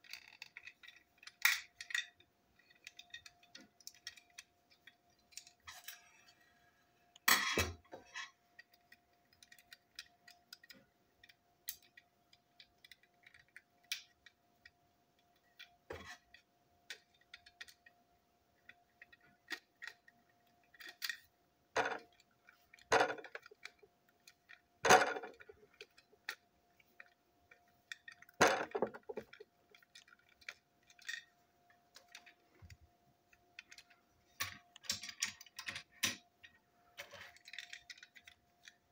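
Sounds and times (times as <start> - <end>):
plastic parts knocking together: 22.8 - 23.7, 24.8 - 25.5, 28.2 - 29.4.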